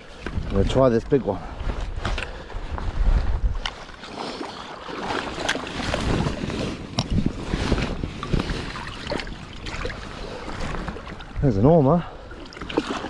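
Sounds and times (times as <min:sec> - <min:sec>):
seawater sloshing and splashing: 0:03.2 - 0:13.0.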